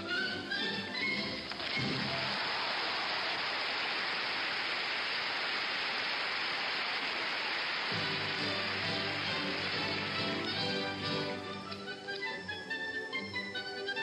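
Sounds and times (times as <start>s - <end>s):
orchestra playing: 0.0s - 2.1s, 7.9s - 14.0s
audience applauding: 1.5s - 11.5s.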